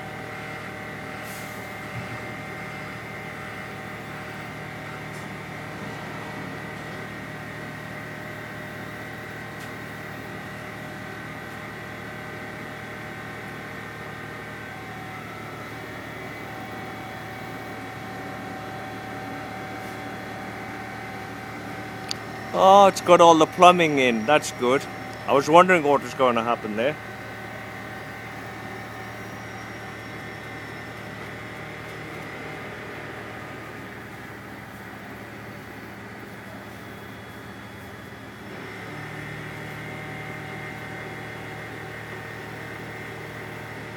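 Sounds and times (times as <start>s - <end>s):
crane engine droning with whine: 0.0s - 43.9s
high whine: 19.1s - 32.8s.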